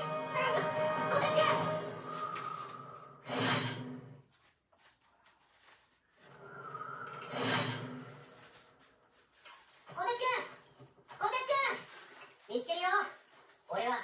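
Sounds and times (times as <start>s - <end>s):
rushing whooshes from television: 0.7s - 4.2s, 6.2s - 9.1s.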